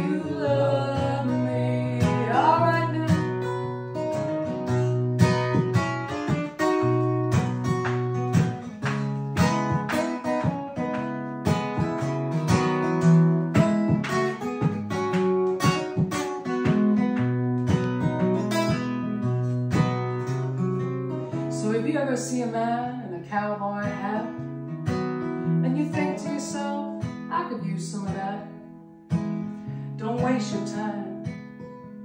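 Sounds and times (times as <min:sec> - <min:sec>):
acoustic guitars strumming chords: 0:00.0 - 0:32.0.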